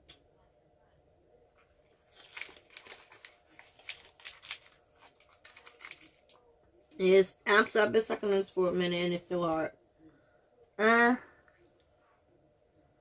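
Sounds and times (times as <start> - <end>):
plastic packaging crinkling: 1.9 - 6.4.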